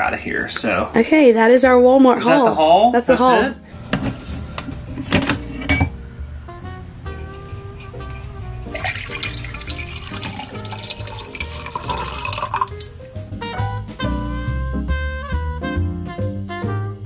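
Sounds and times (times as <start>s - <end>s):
background music: 0.0s - 17.0s
coffee pouring into mug: 8.6s - 13.3s.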